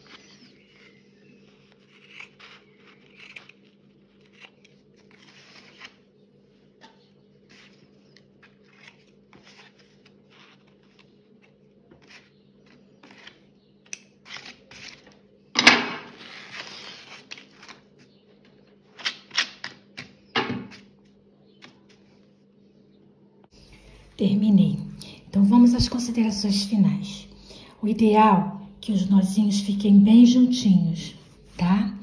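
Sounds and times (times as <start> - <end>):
paper tape peeling off: 0.0 - 6.1, 7.4 - 13.4, 16.0 - 17.9.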